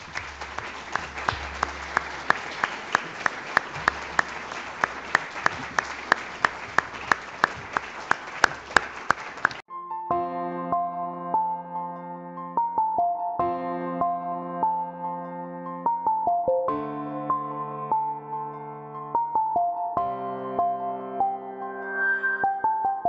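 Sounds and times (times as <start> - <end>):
audience applauding: 0.0 - 9.6
hands clapping close by: 0.0 - 9.6
soft keyboard music: 9.7 - 23.0.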